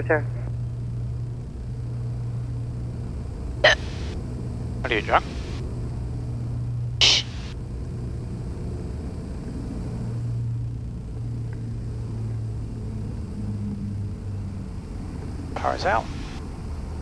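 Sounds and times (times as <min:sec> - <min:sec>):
piston aircraft engines droning: 0:00.0 - 0:17.0
brief hiss: 0:07.0 - 0:07.5.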